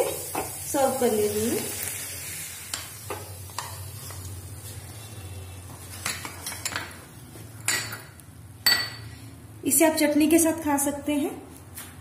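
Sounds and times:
utensils clinking and knocking: 0:06.0 - 0:07.0.

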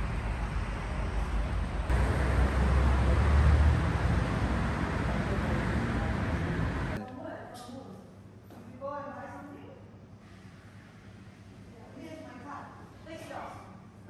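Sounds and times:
road traffic rumble: 0:00.0 - 0:07.0.

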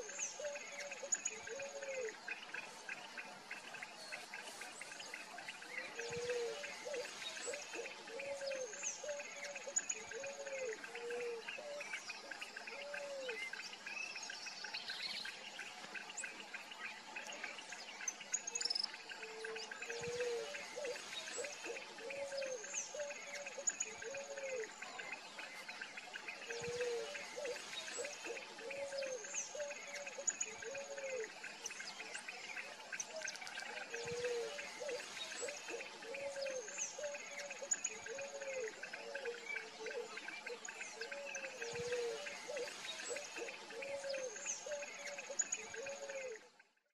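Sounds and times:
faint bird chirps: 0:00.0 - 0:46.9.

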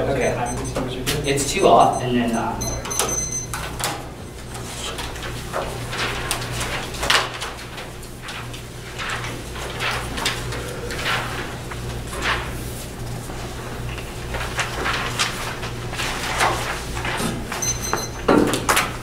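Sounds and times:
low room hum: 0:00.0 - 0:18.9
paper rustling: 0:04.5 - 0:17.6.

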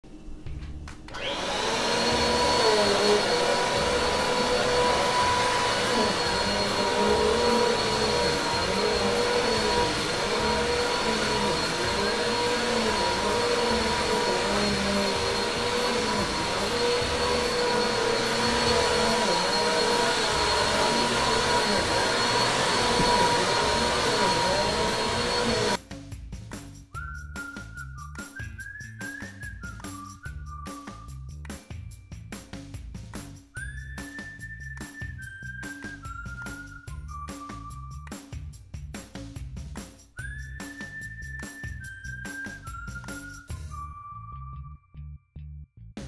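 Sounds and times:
vacuum cleaner running: 0:00.1 - 0:25.8.

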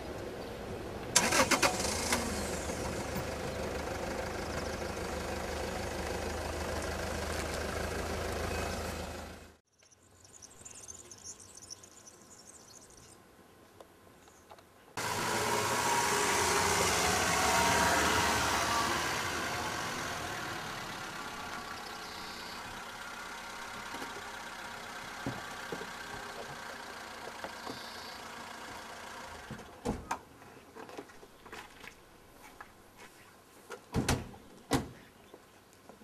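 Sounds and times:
car engine running: 0:01.6 - 0:09.6, 0:15.0 - 0:29.5.

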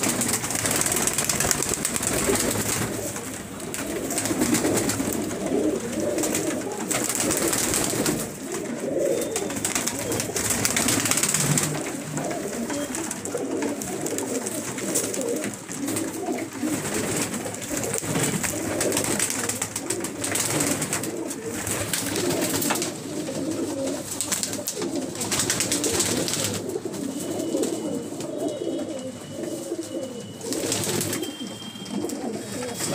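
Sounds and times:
wings flapping: 0:00.0 - 0:26.8, 0:30.4 - 0:31.4
pigeons cooing: 0:00.0 - 0:32.9.

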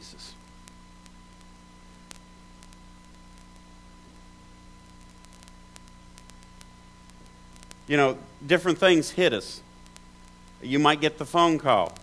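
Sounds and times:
electrical hum and hiss: 0:00.0 - 0:12.0
faint clicks: 0:00.4 - 0:07.9.

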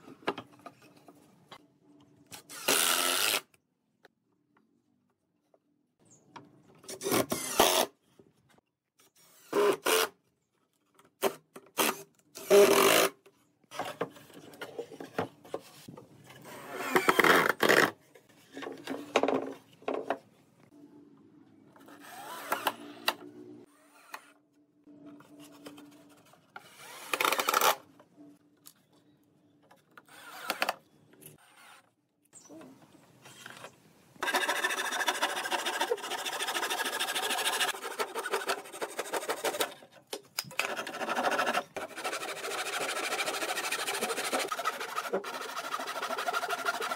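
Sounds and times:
cordless drill boring into wood: 0:02.5 - 0:03.4
handsaw cutting wood: 0:34.2 - 0:39.8, 0:40.6 - 0:46.9.

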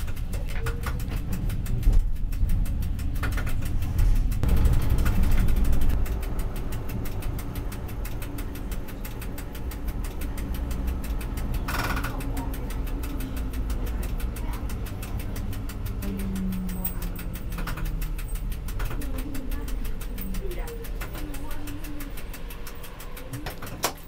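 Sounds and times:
rapid even ticking: 0:00.0 - 0:24.0
tram rumbling: 0:00.0 - 0:24.0.

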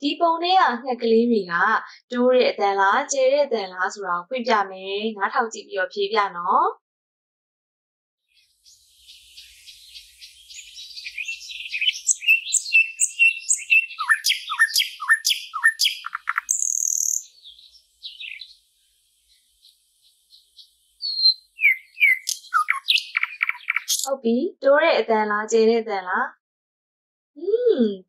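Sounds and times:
songbirds chirping: 0:08.3 - 0:24.1
buzzy bird call: 0:08.4 - 0:24.1
falling whistled bird notes: 0:08.6 - 0:18.6, 0:20.6 - 0:24.1.

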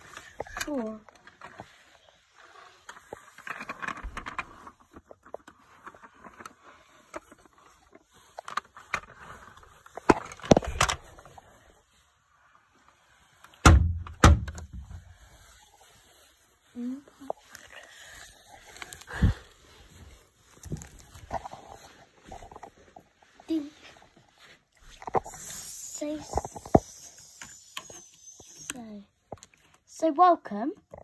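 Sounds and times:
plastic toys rustling and clicking: 0:00.0 - 0:31.0
heavy thump and clatter: 0:13.6 - 0:15.0.

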